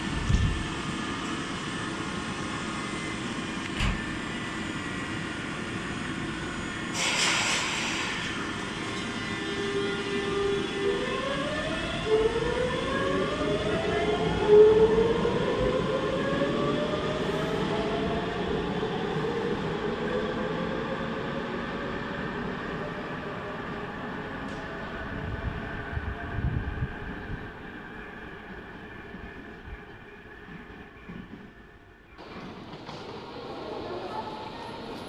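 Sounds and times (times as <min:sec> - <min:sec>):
train rumble: 0:00.0 - 0:35.0
air hiss: 0:06.9 - 0:08.5.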